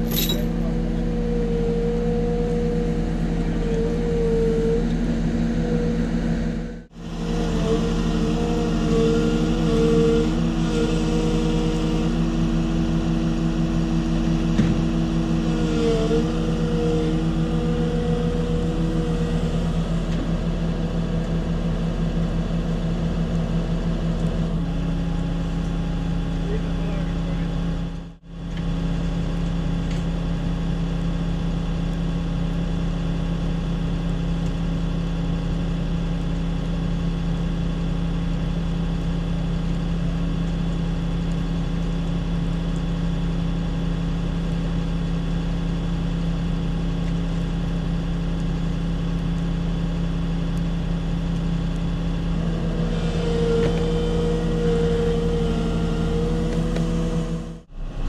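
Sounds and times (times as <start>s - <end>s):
truck diesel engine running: 0.0s - 58.0s
high whine: 48.4s - 58.0s.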